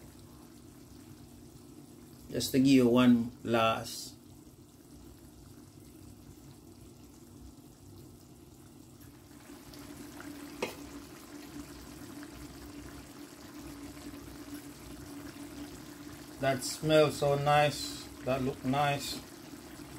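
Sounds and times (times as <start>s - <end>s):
sauce bubbling at a simmer: 0.0s - 19.9s.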